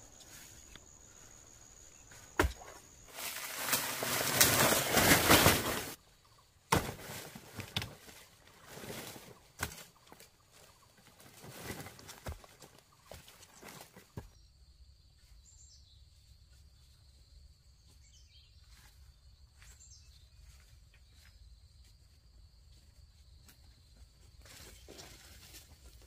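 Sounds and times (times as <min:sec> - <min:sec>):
dry leaves crackling and rustling: 0:03.1 - 0:06.0.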